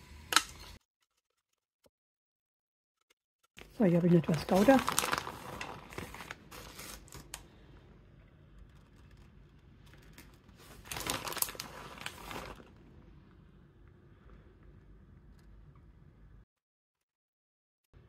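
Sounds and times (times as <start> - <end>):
plastic bag crinkling: 4.1 - 7.3, 10.2 - 12.8.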